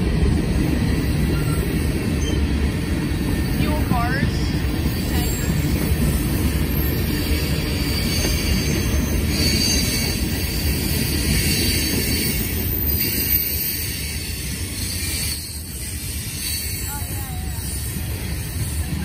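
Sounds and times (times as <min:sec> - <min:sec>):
train wheels rumbling on rails: 0:00.0 - 0:19.0
high-pitched wheel squeals: 0:02.2 - 0:02.5, 0:04.8 - 0:19.0.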